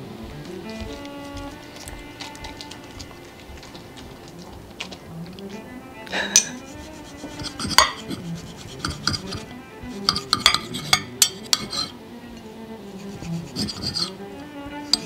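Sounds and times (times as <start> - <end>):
quiet background music: 0.0 - 15.0
knife and fork scraping a plate: 6.2 - 12.0, 13.0 - 14.2.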